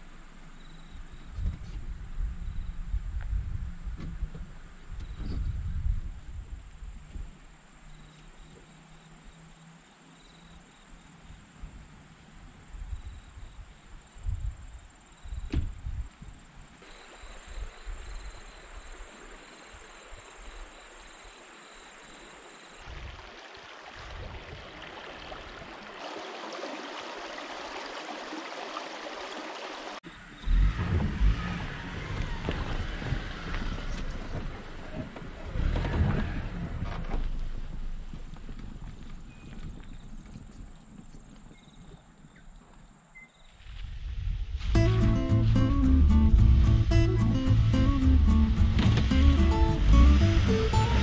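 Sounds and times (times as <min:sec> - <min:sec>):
wind buffeting microphone: 0:01.3 - 0:07.4, 0:43.7 - 0:51.0.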